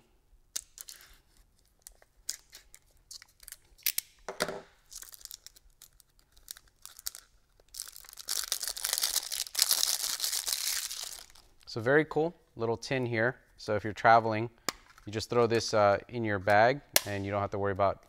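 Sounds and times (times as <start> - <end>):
wrapping tearing and crinkling: 0.6 - 4.1, 4.8 - 11.7.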